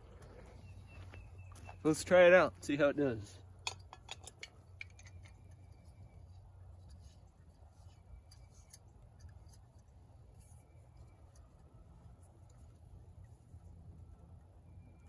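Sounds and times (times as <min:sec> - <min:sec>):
small metallic clicks and scrapes: 0:03.6 - 0:15.0.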